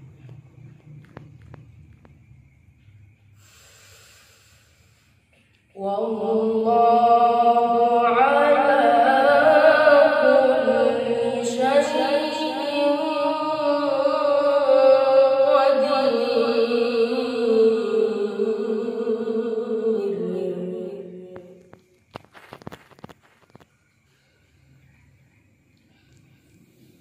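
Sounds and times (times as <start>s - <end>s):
boy reciting melodically: 5.7s - 21.7s.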